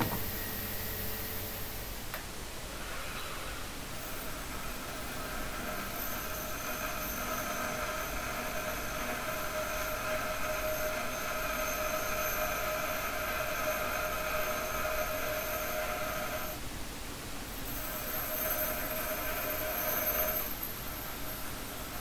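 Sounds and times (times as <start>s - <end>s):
bench grinder whine: 0.0s - 16.6s, 17.5s - 22.0s
steel grinding hiss: 0.0s - 16.6s, 17.5s - 22.0s.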